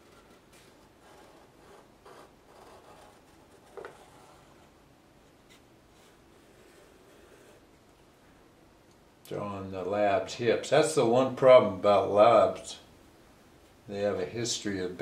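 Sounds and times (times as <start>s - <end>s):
pencil scratching on paper: 0.0s - 4.7s, 5.5s - 7.6s.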